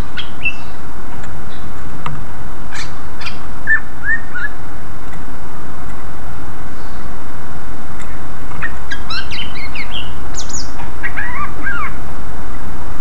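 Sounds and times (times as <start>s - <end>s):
bird chirping and whistling: 0.0s - 0.8s, 2.8s - 4.6s, 8.6s - 12.0s
low rumble and hiss: 0.0s - 13.0s.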